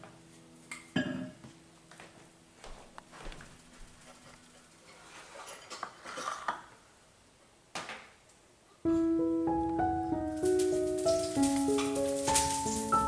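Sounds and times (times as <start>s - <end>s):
dishware clinking: 0.9s - 1.4s, 10.4s - 13.0s
background music with held notes: 8.8s - 13.0s.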